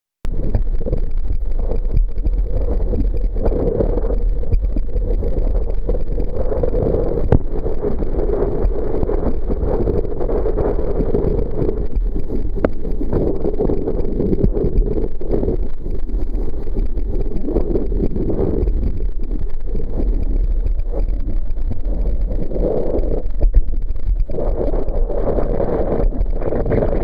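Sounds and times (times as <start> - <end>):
wind buffeting microphone: 24.2 - 27.0.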